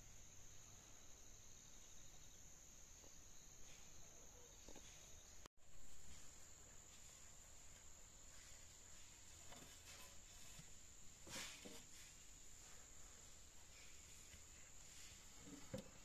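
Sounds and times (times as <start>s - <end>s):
insects chirring: 0.0s - 16.0s
soft knocks and rustles: 7.0s - 12.3s, 13.7s - 16.0s.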